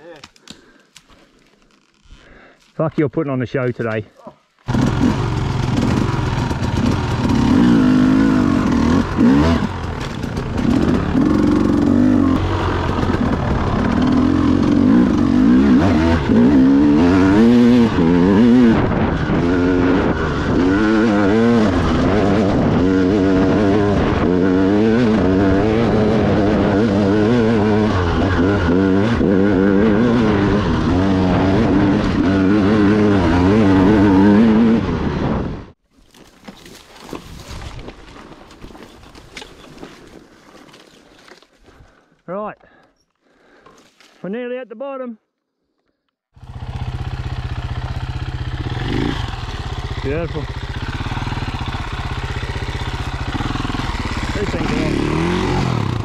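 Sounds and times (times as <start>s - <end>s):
dirt bike engine revving: 4.7s - 35.8s, 46.4s - 56.0s.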